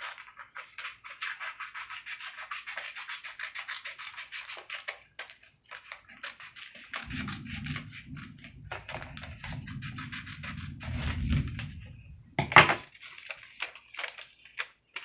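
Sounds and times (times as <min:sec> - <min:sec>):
low rumble: 0:07.0 - 0:12.6
paper crinkling and rustling: 0:12.6 - 0:15.0.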